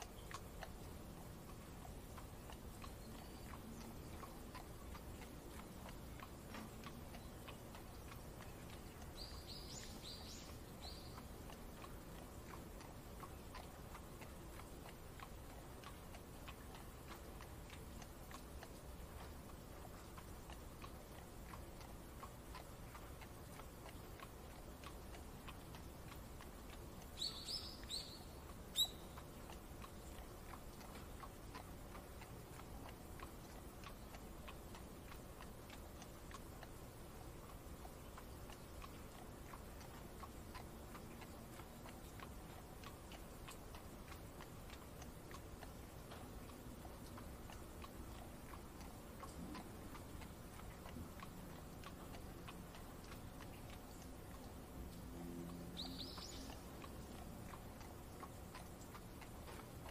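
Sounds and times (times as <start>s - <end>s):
light irregular ticking: 0.0s - 59.9s
soft rain patter: 0.0s - 59.9s
high chirping: 27.2s - 29.2s.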